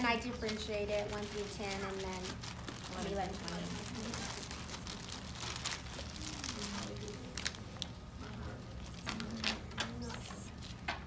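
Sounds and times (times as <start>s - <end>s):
plastic bag crinkling: 0.1s - 8.0s
faint voices talking: 0.2s - 10.8s.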